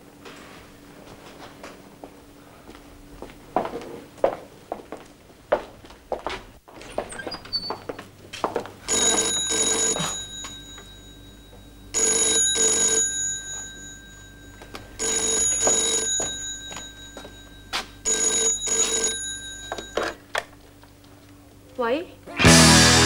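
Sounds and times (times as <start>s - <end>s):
telephone bell ringing: 8.9s - 20.3s.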